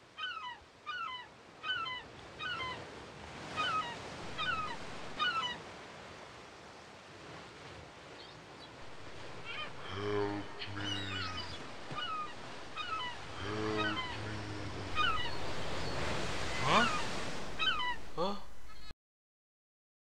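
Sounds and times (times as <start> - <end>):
surf: 2.2 - 18.8
birds chirping: 3.6 - 5.6, 8.2 - 18.9
short falling bird calls: 3.6 - 5.6, 9.1 - 18.9.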